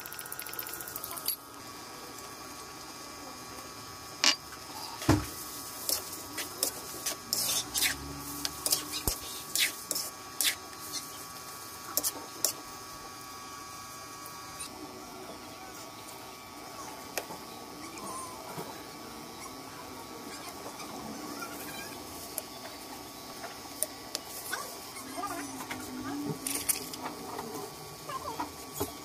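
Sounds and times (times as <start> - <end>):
steady background hum: 0.0 - 29.0
utensil scraping metal wok: 5.8 - 11.1.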